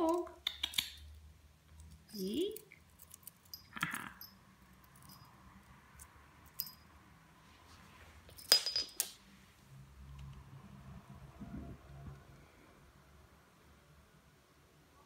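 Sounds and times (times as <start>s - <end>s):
cat toy bell jingling: 2.1s - 5.4s, 6.5s - 6.8s.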